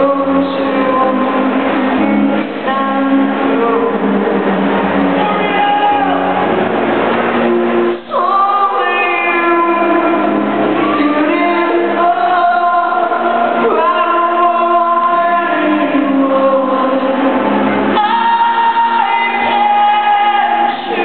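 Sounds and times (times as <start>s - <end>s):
singer holding long notes: 0.0s - 21.0s
live rock band playing: 0.4s - 14.8s.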